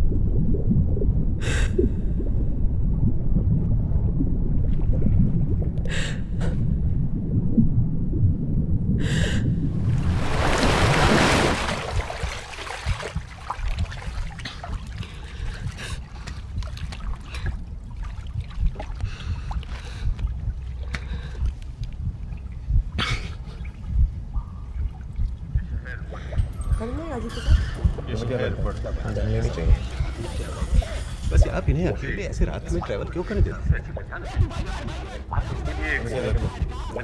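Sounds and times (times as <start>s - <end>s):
water lapping and trickling: 0.0s - 6.9s, 9.1s - 37.0s
water churning: 0.0s - 23.9s, 24.8s - 37.0s
water splashing: 9.7s - 22.6s.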